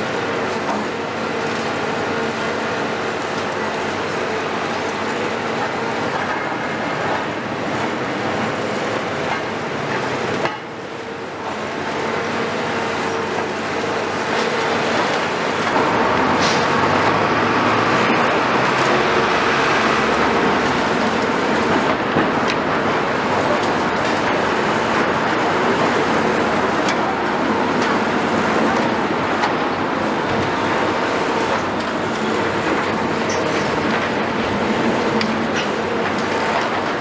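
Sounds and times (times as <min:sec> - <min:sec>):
excavator diesel engine under load: 0:00.0 - 0:37.0
train passing: 0:14.8 - 0:23.6.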